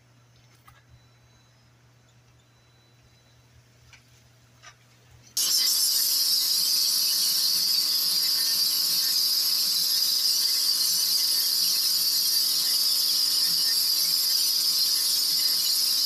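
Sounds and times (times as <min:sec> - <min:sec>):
faint steady hum: 0:00.0 - 0:05.4
pressure washer spraying concrete: 0:05.4 - 0:16.0.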